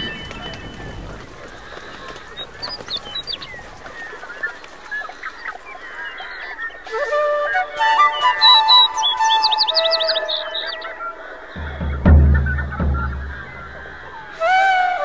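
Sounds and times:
birds calling: 0.0s - 15.0s
music: 6.9s - 10.6s, 11.6s - 15.0s.

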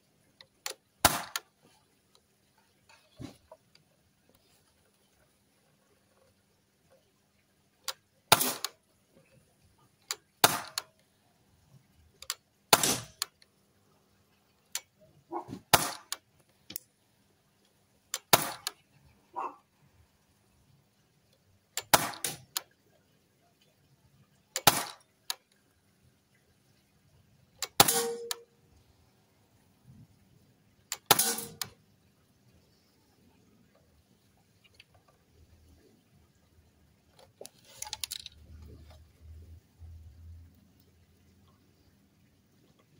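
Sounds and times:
air rifle shots: 1.0s - 1.4s, 8.3s - 8.7s, 10.4s - 10.8s, 12.7s - 13.2s, 15.7s - 16.2s, 18.3s - 18.7s, 21.9s - 22.4s, 24.6s - 25.0s, 27.8s - 28.4s, 31.1s - 31.6s
faint clicks: 14.2s - 15.4s.

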